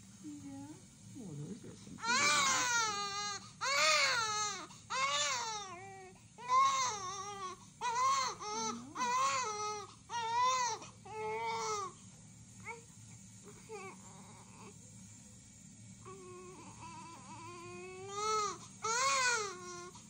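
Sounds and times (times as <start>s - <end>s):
newborn baby crying: 2.0s - 12.0s, 16.0s - 20.0s.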